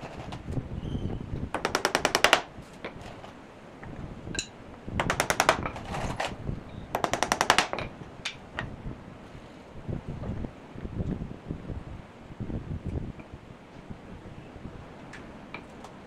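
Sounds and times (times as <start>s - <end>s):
rapid sharp clicks: 1.6s - 2.5s, 5.0s - 5.7s, 7.0s - 7.8s.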